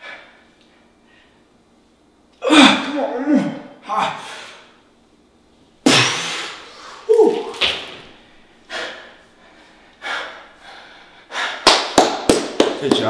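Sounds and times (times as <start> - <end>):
man grunting: 2.4 - 4.4, 7.0 - 7.6
man exhaling forcefully: 5.9 - 7.3.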